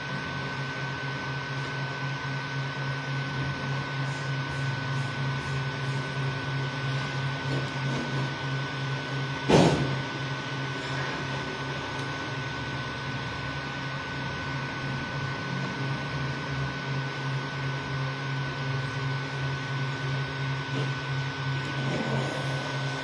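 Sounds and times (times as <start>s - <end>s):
steady high whine: 0.0s - 23.0s
stepper motors pulsing hum: 0.0s - 23.0s
sharp knock: 9.5s - 10.0s.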